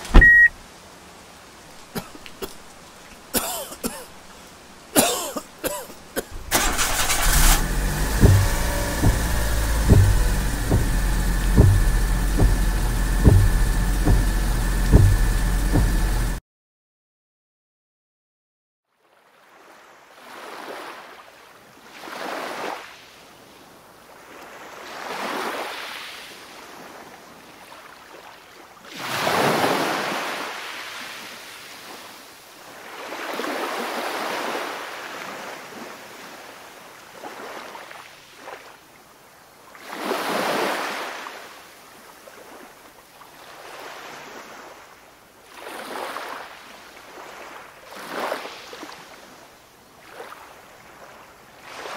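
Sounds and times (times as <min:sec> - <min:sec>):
ocean waves surging: 0:04.9 - 0:16.4.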